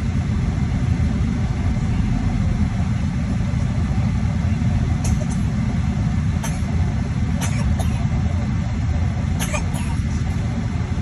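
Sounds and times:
car engine rumble inside cabin: 0.0s - 11.0s.

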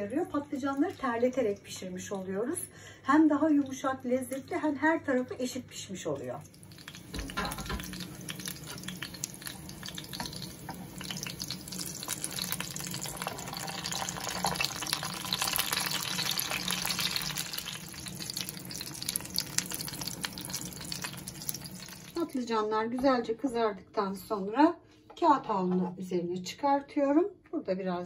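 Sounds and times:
eggplants sizzling in oil: 3.4s - 22.5s.

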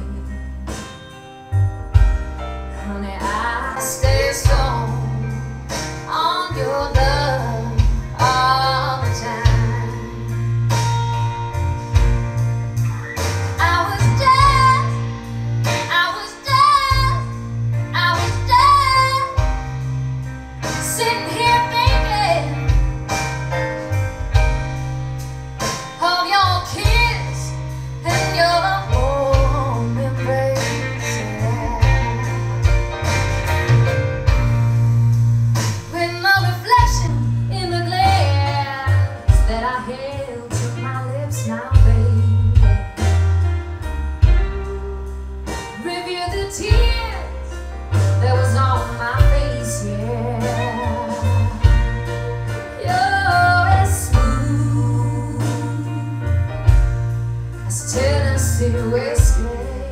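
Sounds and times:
song with strong bass line: 0.0s - 59.9s
woman singing: 2.8s - 10.4s, 13.6s - 19.5s, 20.8s - 22.8s, 26.0s - 32.6s, 35.9s - 42.9s, 44.4s - 56.4s, 57.7s - 59.9s.

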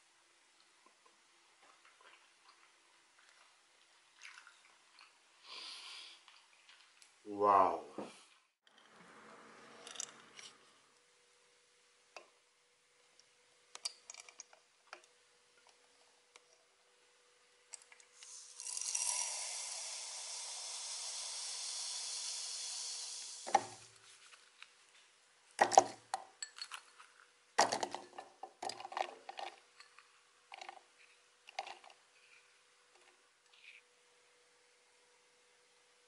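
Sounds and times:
pouring hiss into plastic bowl: 18.2s - 23.9s.

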